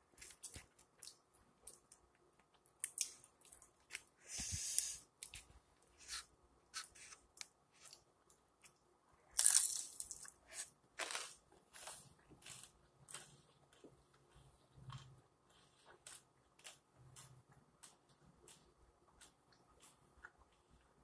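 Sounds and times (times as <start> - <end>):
person chewing crunchy food: 9.3 - 21.0.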